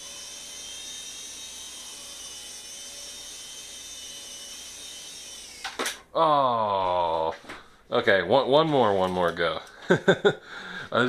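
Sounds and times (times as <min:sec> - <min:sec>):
toy helicopter rotor whine: 0:00.0 - 0:06.0.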